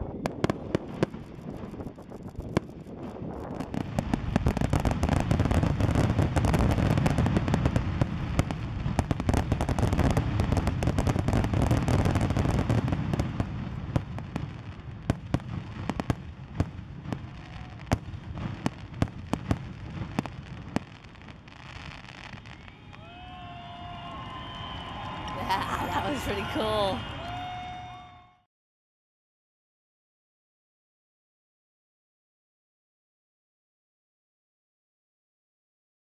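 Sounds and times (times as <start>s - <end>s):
sharp firework bangs: 0.0s - 22.6s.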